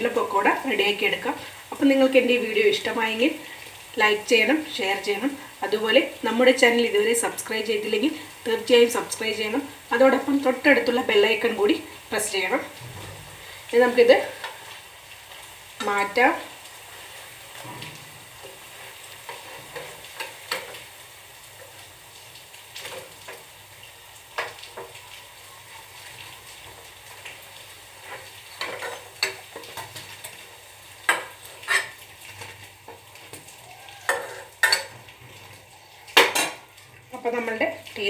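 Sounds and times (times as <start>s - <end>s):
food sizzling in oil: 0.0s - 38.0s
metal utensil scraping pan: 17.0s - 20.9s, 28.0s - 33.4s, 34.0s - 35.5s.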